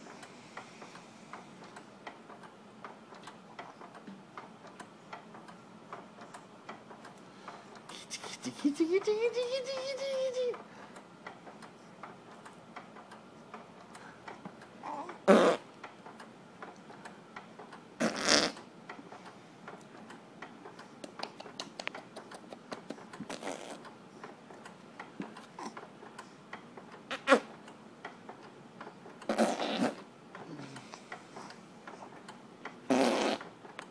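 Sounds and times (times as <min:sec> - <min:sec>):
baby grunting and breathing: 0:25.6 - 0:25.8.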